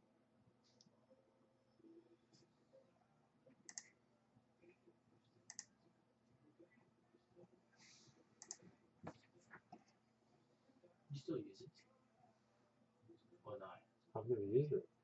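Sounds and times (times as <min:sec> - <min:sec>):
computer mouse clicks: 0:03.6 - 0:04.0, 0:05.5 - 0:05.7, 0:08.4 - 0:08.7.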